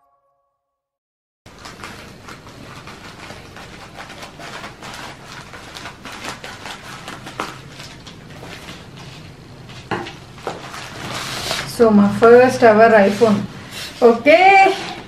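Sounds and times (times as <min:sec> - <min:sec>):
plastic crinkling: 0:01.5 - 0:11.8.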